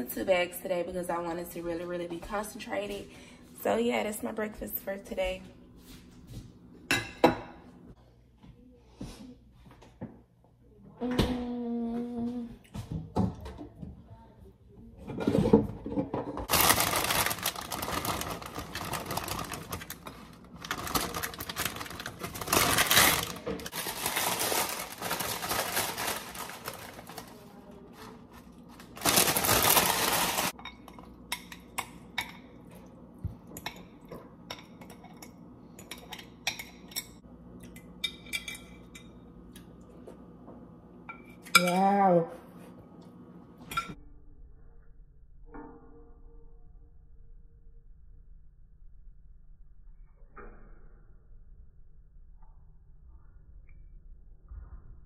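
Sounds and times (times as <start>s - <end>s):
plastic bag crinkling: 16.5s - 30.6s.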